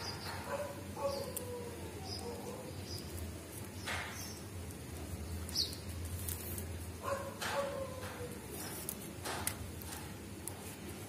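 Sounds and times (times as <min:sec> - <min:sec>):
plastic wire rustling and ticking: 0:03.0 - 0:11.0.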